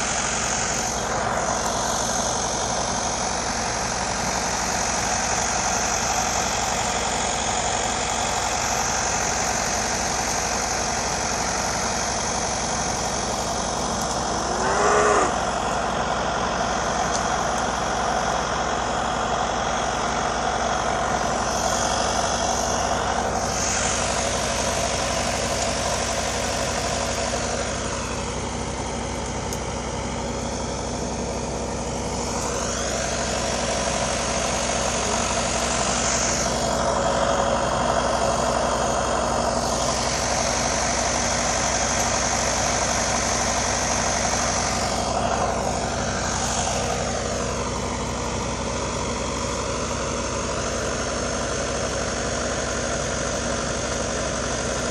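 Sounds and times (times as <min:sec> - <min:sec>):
hiss: 0:00.0 - 0:13.2, 0:21.4 - 0:27.2
mechanical drone: 0:09.8 - 0:16.0, 0:21.1 - 0:28.5, 0:31.5 - 0:48.4.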